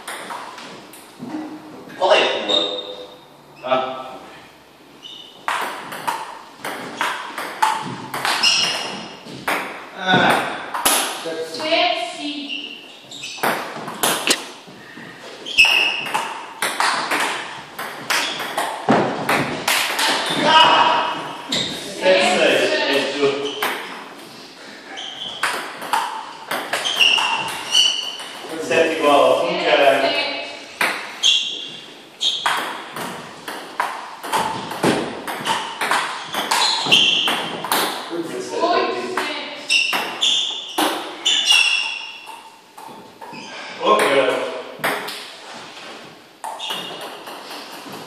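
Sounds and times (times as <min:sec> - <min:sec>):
ping-pong ball hitting paddles: 0:00.0 - 0:00.6, 0:05.4 - 0:11.2, 0:13.4 - 0:14.5, 0:15.5 - 0:21.3, 0:23.4 - 0:24.0, 0:25.3 - 0:28.7, 0:30.8 - 0:31.2, 0:32.3 - 0:38.1, 0:39.0 - 0:43.4, 0:44.0 - 0:45.3, 0:46.4 - 0:48.0
high squeak: 0:08.4 - 0:09.0, 0:26.8 - 0:28.2, 0:31.2 - 0:32.4, 0:36.2 - 0:37.4, 0:39.6 - 0:42.3.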